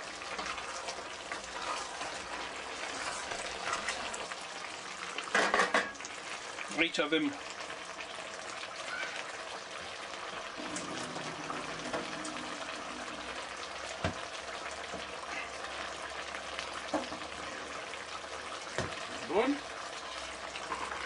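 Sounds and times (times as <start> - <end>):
juice splashing into a steel sink: 10.6 - 14.3.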